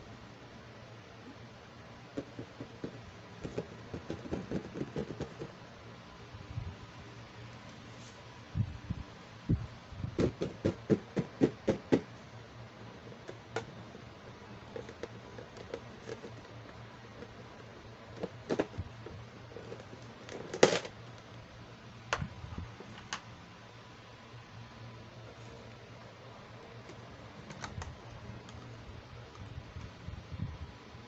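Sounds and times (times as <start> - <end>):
fingers tapping plastic lid: 2.2 - 5.5, 10.2 - 12.1
plastic clicks: 26.8 - 28.7.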